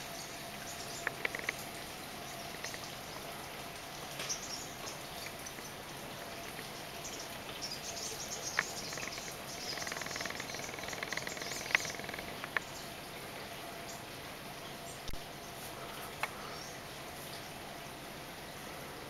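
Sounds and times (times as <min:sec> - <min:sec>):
steady hiss: 0:00.0 - 0:19.0
sharp clicks: 0:01.0 - 0:01.6, 0:08.5 - 0:12.7
rapid chirping trill: 0:07.1 - 0:12.6.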